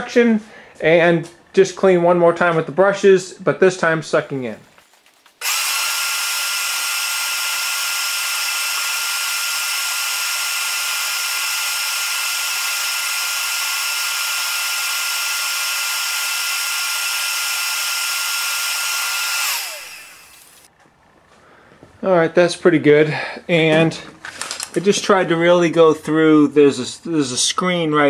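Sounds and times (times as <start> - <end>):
shop vacuum running: 5.4 - 21.9.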